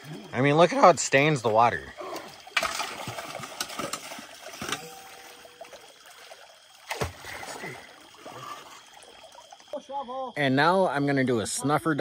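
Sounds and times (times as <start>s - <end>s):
creek water running over rocks: 0.0s - 11.0s.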